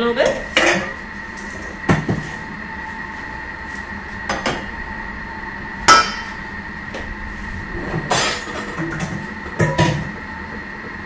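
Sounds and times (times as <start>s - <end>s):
kitchen machine humming: 0.0s - 11.0s.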